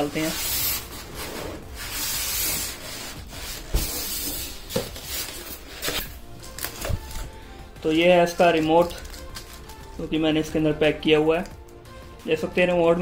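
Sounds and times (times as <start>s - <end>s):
foam scraping against cardboard: 0.0s - 6.1s
plastic wrapping rustling: 0.0s - 10.6s.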